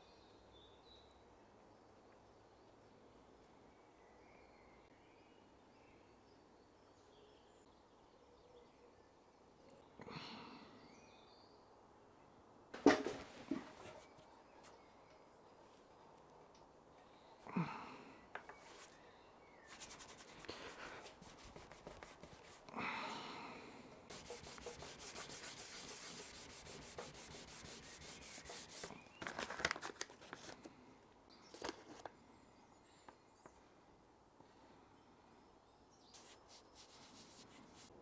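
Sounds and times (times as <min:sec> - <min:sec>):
hand rubbing over wood: 0:19.7 - 0:22.7, 0:24.1 - 0:29.0, 0:36.2 - 0:37.9
scraper strokes on wood: 0:19.7 - 0:22.7, 0:24.1 - 0:29.0, 0:36.2 - 0:37.9.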